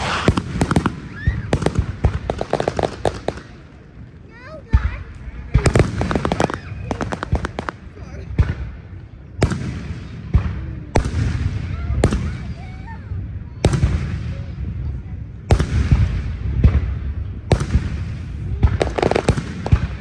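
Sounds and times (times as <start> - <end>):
firework shells bursting: 0.0 - 3.8, 5.6 - 7.9
rumbling echo: 0.0 - 20.0.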